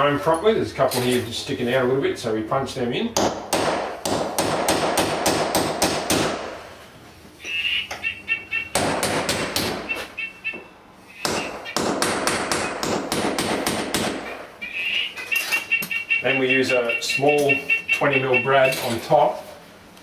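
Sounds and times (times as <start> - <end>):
hammer tapping nail punch: 11.2 - 14.2.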